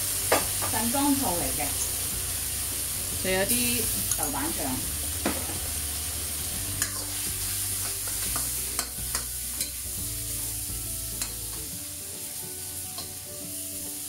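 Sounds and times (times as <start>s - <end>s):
vegetables sizzling in a wok: 0.0s - 14.0s
spatula scraping a wok: 5.4s - 10.6s
spatula clicking against wok: 8.1s - 9.8s.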